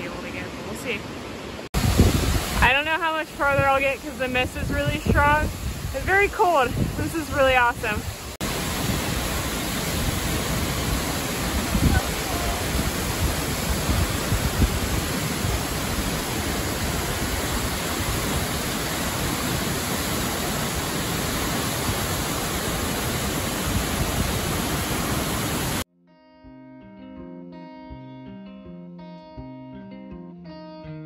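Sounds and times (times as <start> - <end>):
waterfall roaring: 0.0 - 25.8
plucked guitar music: 25.9 - 31.0.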